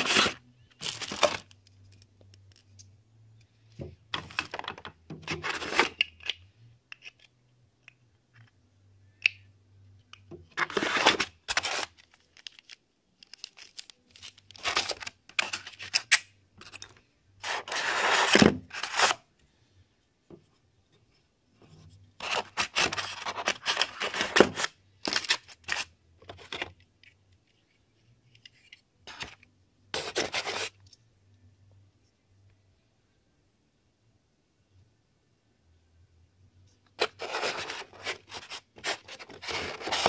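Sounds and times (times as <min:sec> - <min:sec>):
rustling of foam and plastic packing: 0:00.0 - 0:01.6.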